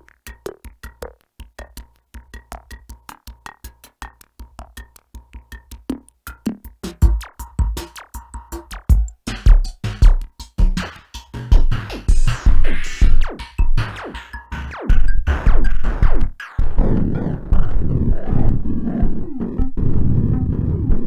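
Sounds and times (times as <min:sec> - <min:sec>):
drum machine hits: 0:00.0 - 0:21.0
dense low synth layer: 0:14.7 - 0:21.0.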